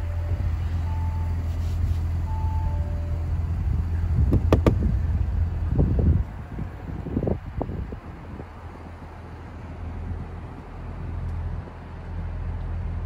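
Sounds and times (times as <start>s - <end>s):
car engine idling: 0.0s - 13.0s
sharp clicks and knocks: 4.3s - 4.8s.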